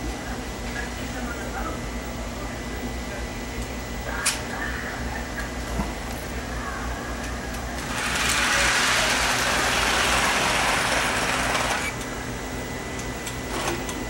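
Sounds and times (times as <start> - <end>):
low electrical hum: 0.0 - 14.0
toy train mechanical rush: 7.8 - 12.0.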